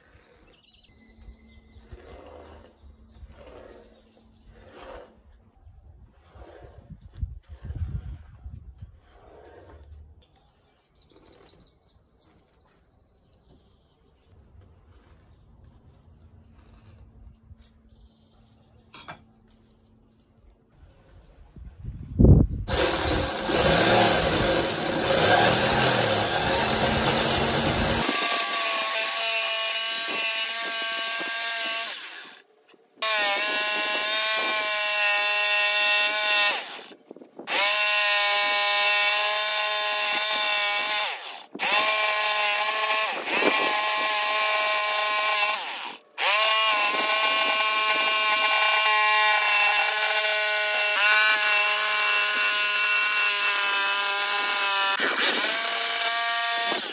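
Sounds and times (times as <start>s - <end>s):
electric jigsaw cutting wood: 22.7s - 56.9s.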